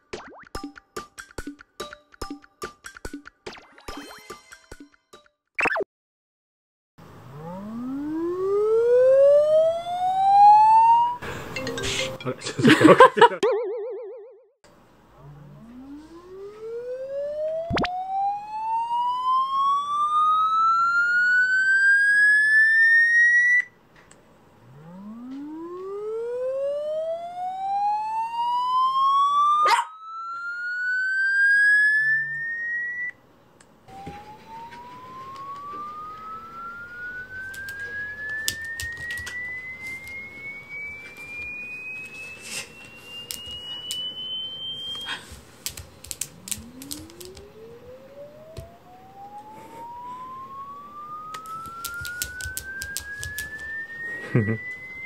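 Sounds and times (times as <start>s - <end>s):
electronic tone sweeping upward: 7.2s - 11.2s, 13.4s - 14.4s, 15.3s - 23.7s, 24.6s - 33.2s, 33.9s - 45.3s, 46.3s - 55.0s.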